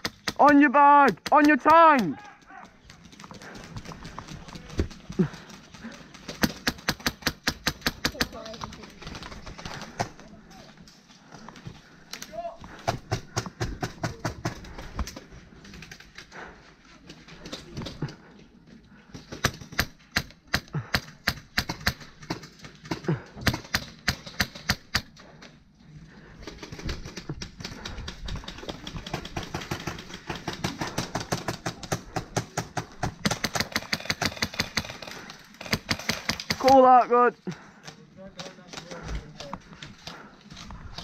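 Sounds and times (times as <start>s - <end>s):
airsoft guns firing: 4.6s - 10.2s, 19.2s - 25.2s, 26.4s - 37.0s.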